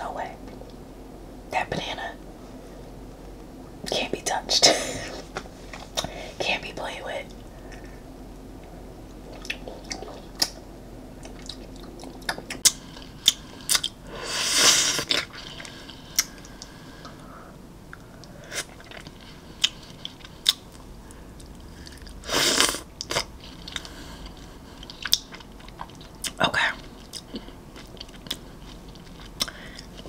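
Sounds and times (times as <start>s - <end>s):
chewing: 11.2s - 14.0s, 17.9s - 20.8s, 21.4s - 30.0s.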